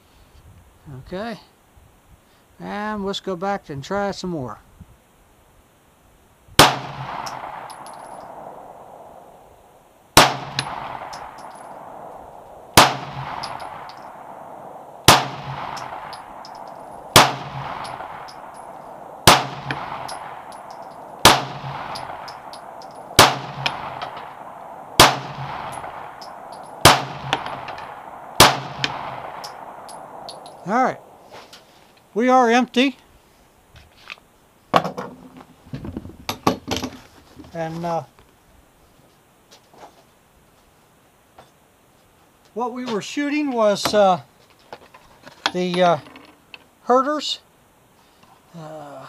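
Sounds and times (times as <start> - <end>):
pistol shots with echo: 6.6 - 9.0, 10.2 - 12.1, 12.7 - 31.2.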